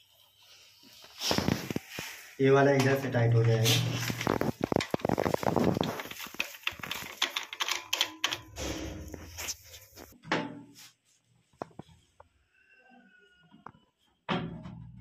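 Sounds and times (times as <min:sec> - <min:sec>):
small plastic clicks and rattles: 0:04.4 - 0:08.5.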